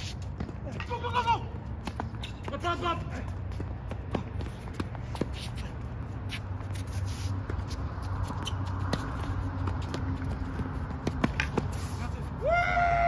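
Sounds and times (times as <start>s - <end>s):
players' footsteps: 0.0s - 12.5s
tennis ball bouncing: 8.2s - 11.8s.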